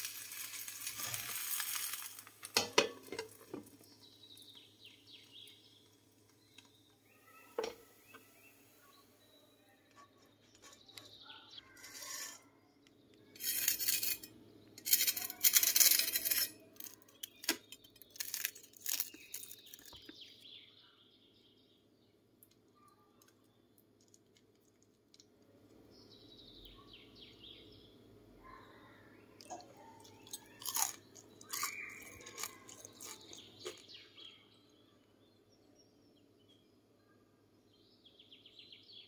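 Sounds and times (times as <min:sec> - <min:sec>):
knife crunching crispy crust: 0:00.0 - 0:02.6, 0:14.8 - 0:20.1, 0:30.2 - 0:33.9.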